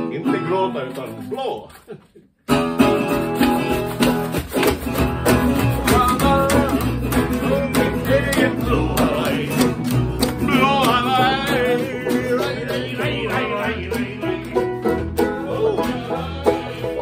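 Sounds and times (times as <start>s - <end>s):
acoustic string band: 0.0s - 1.5s, 2.5s - 17.0s
men singing: 5.3s - 17.0s.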